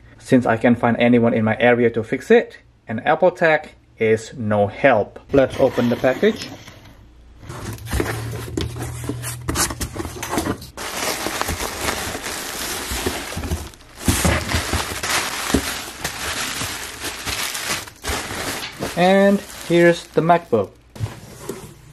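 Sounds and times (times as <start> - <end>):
bubble wrap crinkling: 7.8 - 21.0.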